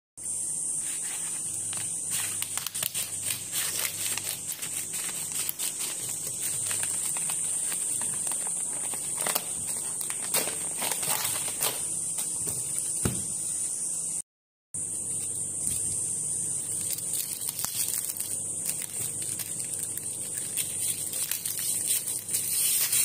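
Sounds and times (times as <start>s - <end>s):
steady high hiss: 0.2s - 14.2s, 14.8s - 23.0s
plastic bag crinkling: 1.6s - 11.9s, 16.7s - 23.0s
scissors cutting plastic: 1.7s - 12.3s, 16.7s - 23.0s.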